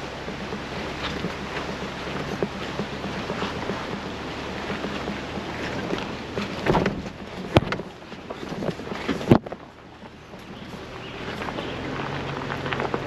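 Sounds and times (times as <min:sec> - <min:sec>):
engine and tyres rumbling: 0:00.0 - 0:13.0
sharp knocks over rocks: 0:00.3 - 0:10.5.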